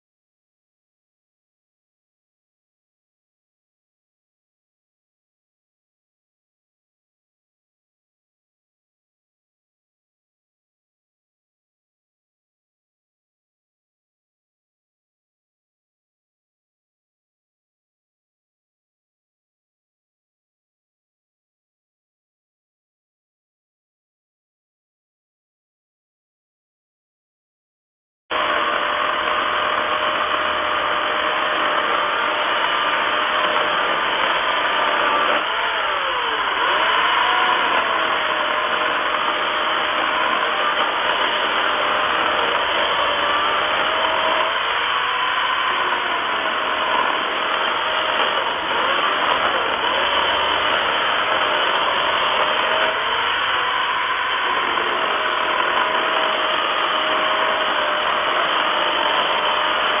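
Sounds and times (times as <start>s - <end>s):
electric chainsaw cutting log: 28.3s - 60.0s.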